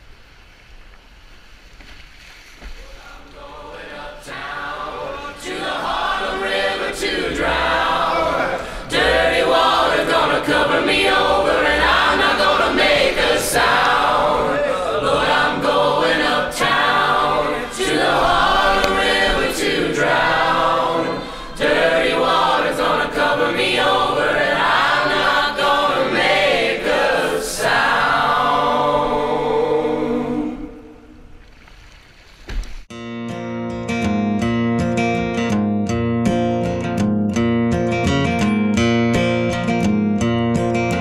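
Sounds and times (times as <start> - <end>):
choir singing: 3.0 - 31.3.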